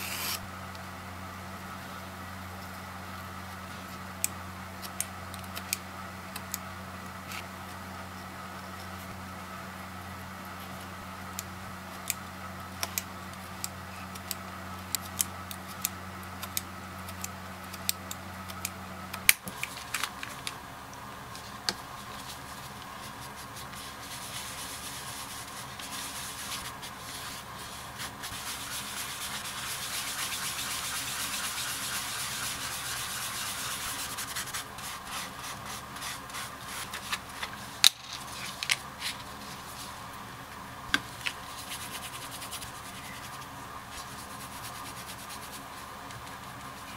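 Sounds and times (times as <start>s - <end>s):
low steady hum: 0.0s - 46.9s
sponge scrubbing leather: 22.3s - 37.1s.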